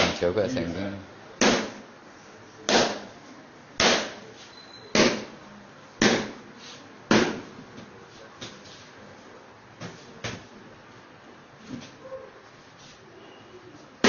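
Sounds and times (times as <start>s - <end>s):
mallet striking a block: 3.8s - 4.2s.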